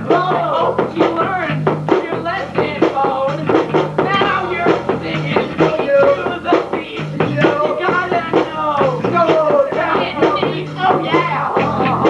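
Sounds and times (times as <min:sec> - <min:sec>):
drum beat: 0:00.0 - 0:12.0
person rapping: 0:00.0 - 0:12.0
repeating bass line: 0:07.2 - 0:07.8.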